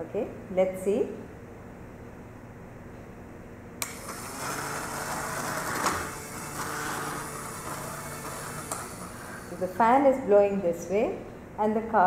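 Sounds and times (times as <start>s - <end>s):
electric fan whirring: 0.0s - 12.0s.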